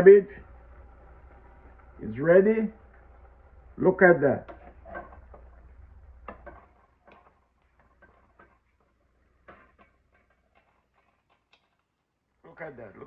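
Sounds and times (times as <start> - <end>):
wooden spoon stirring in pot: 0.4 - 12.4.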